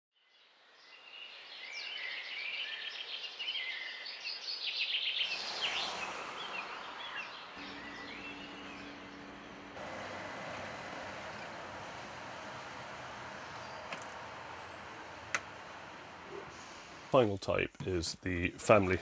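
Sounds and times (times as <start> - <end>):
small birds chirping: 0.8 - 9.8.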